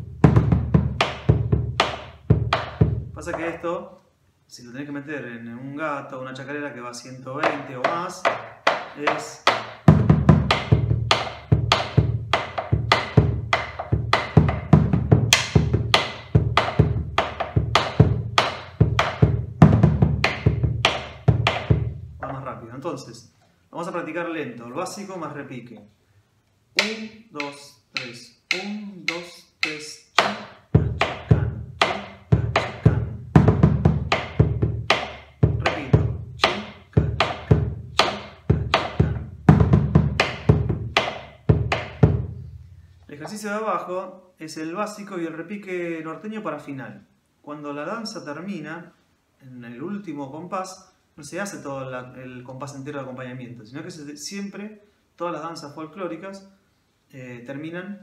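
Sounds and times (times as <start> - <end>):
bass drum strokes on hide: 0.0 - 3.6, 7.4 - 22.5, 26.8 - 42.6
sticks clicking on wooden rim: 26.8 - 32.8, 34.2 - 39.1.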